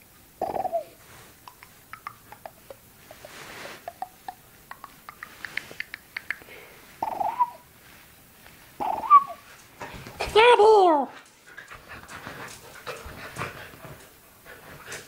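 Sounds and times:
dog whining: 0:08.8 - 0:09.4.

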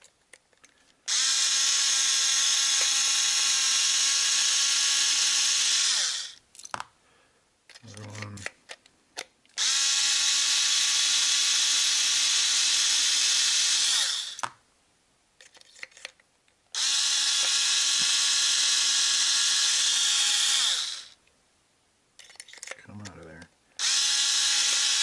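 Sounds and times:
cordless drill whining: 0:01.1 - 0:06.4, 0:09.6 - 0:14.5, 0:16.8 - 0:21.2, 0:23.8 - 0:25.0
small clicks: 0:22.2 - 0:23.5.

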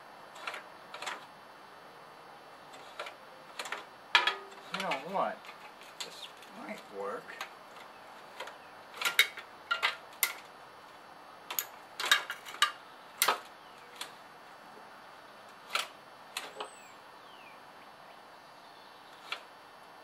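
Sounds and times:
hand tools clicking and tapping: 0:02.7 - 0:10.4.

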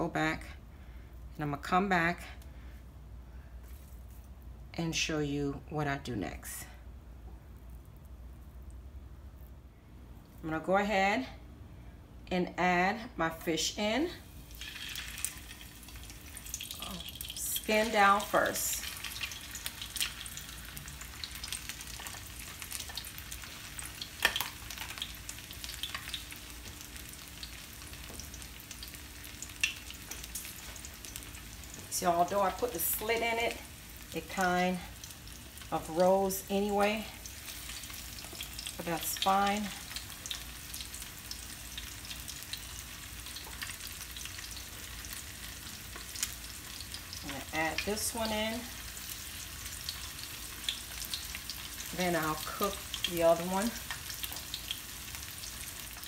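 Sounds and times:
fish frying in hot oil: 0:14.4 - 0:56.0.

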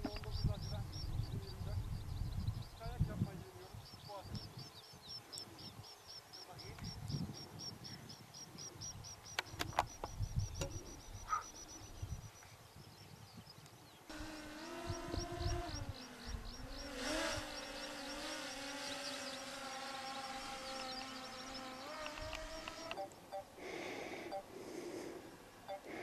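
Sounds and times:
wind on microphone: 0:00.0 - 0:05.9, 0:06.6 - 0:18.8
high repeated chirping: 0:00.0 - 0:12.5, 0:14.1 - 0:23.6
sharp clicks: 0:09.2 - 0:10.8, 0:20.7 - 0:23.4
drone propellers humming: 0:14.1 - 0:23.2.

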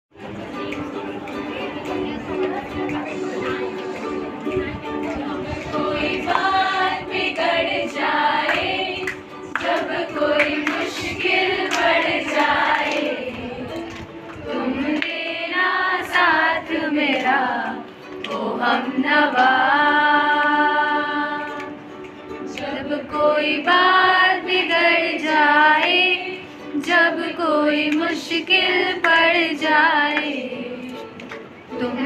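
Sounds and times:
music with group singing: 0:00.2 - 0:32.0
female lead voice singing: 0:14.5 - 0:21.8, 0:22.6 - 0:32.0.

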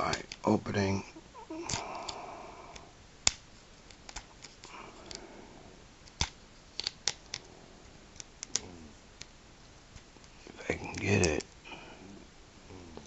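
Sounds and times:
plastic toy parts clicking: 0:06.0 - 0:07.5, 0:08.2 - 0:08.6.

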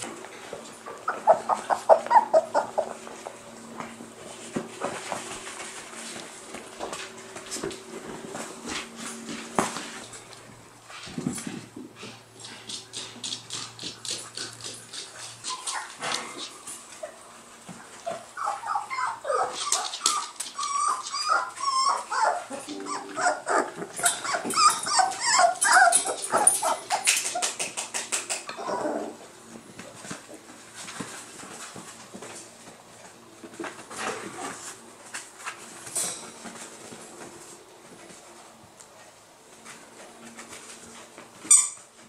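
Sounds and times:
puppies yipping and whining: 0:01.0 - 0:03.0, 0:15.4 - 0:16.0, 0:18.0 - 0:27.5.

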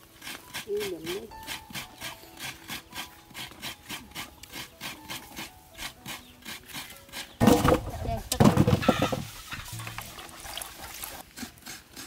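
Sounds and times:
tuber rasping against blade: 0:00.0 - 0:07.4.

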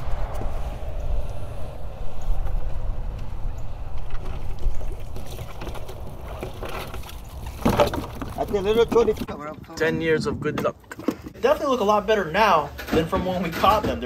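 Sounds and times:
steady low rumble: 0:00.0 - 0:06.5.

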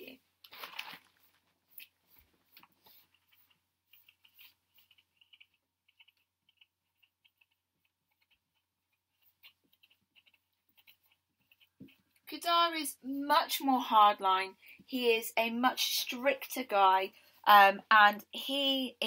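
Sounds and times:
marker squeaking on whiteboard: 0:01.7 - 0:12.4.

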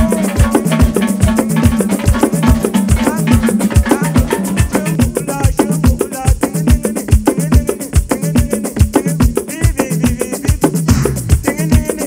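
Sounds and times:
upbeat music with percussive beat: 0:00.0 - 0:12.0.

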